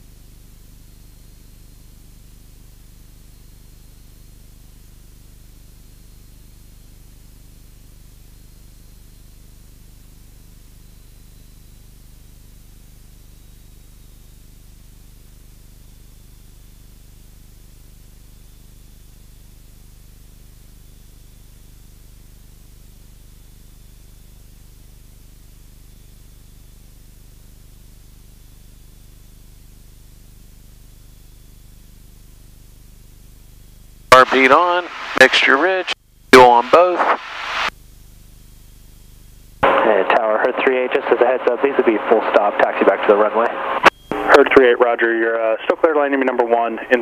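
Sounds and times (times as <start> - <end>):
constant hiss: 33.2 - 47.0
propeller plane engine drone: 34.2 - 37.0, 39.6 - 47.0.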